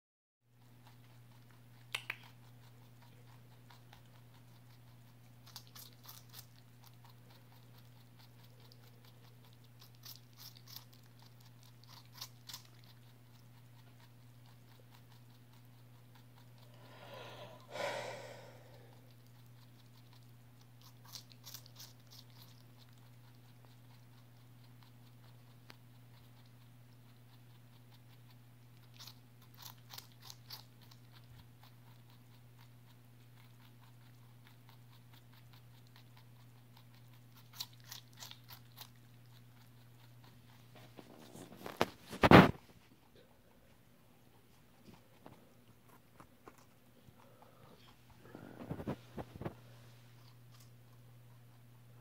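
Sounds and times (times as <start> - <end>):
rabbit crunching cucumber: 0.5 - 52.0
low hum: 39.0 - 52.0.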